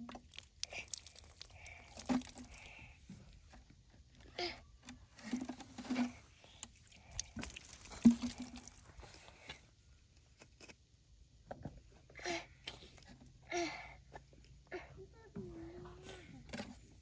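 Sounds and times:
light water splashing: 0.1s - 3.0s, 6.6s - 9.2s.

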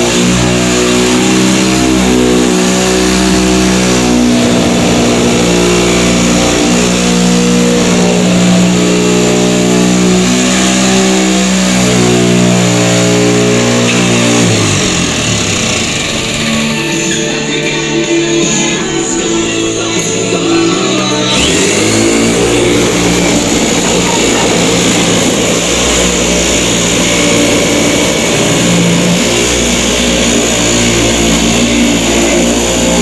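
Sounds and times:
electric metal shear cutting: 0.0s - 33.0s.

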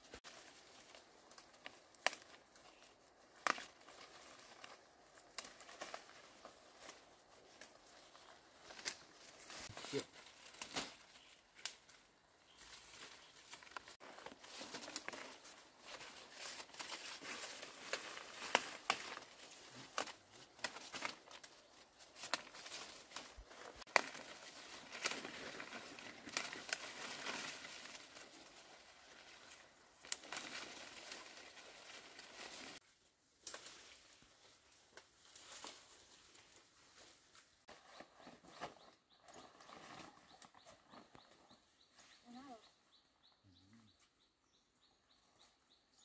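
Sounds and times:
leaves and stems rustling: 0.0s - 42.9s
stalks snapping: 1.3s - 2.4s, 17.9s - 21.5s, 22.2s - 27.1s.

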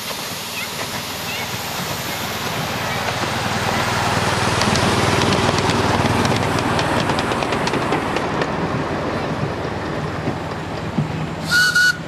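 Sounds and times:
miniature locomotive running: 0.0s - 8.4s.

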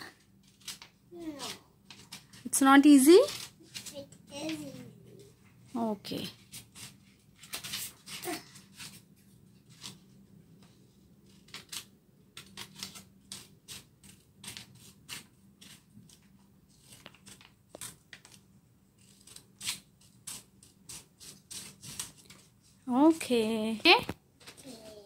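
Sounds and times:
scissors snipping paper: 0.1s - 2.4s, 3.1s - 4.7s, 11.2s - 18.4s, 19.0s - 22.5s.

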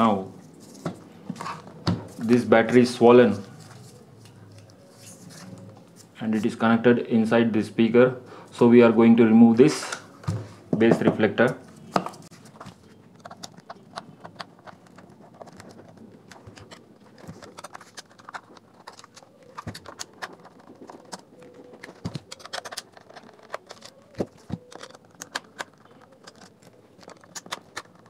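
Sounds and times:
metal pry tool on plastic: 13.2s - 28.0s.

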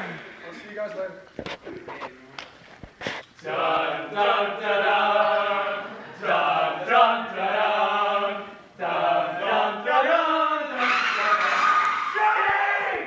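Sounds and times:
voices chanting long held notes: 3.4s - 13.0s.

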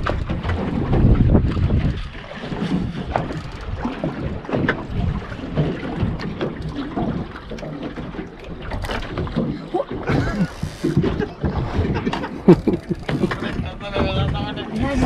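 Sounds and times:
wind buffeting microphone: 0.0s - 15.0s
fishing gear clicking and knocking: 2.6s - 14.4s.

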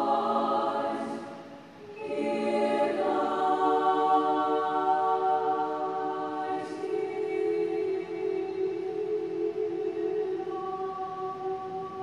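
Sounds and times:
women's chorus singing chords: 0.0s - 12.0s.

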